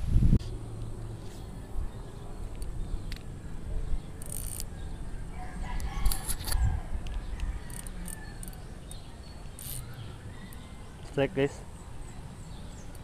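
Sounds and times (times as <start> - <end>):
rooster crowing: 5.3 - 11.0.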